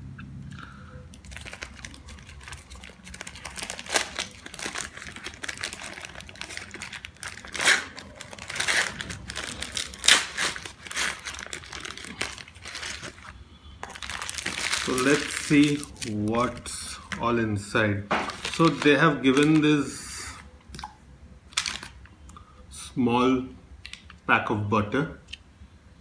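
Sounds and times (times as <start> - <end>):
paper wrapping crinkling: 1.1 - 17.2, 18.1 - 20.0, 21.5 - 22.0.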